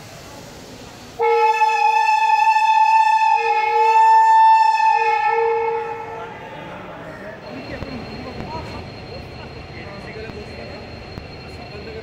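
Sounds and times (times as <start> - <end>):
two-tone locomotive air horn: 1.2 - 6.2.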